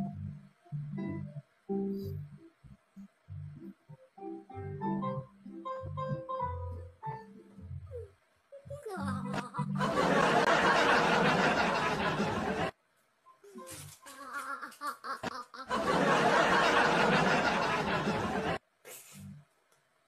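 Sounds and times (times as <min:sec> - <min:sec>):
crowd laughter laugh track: 0:09.6 - 0:12.7, 0:14.2 - 0:18.6.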